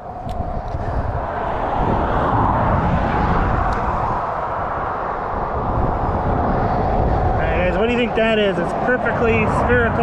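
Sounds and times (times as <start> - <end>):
road traffic passing: 0.0 - 10.0.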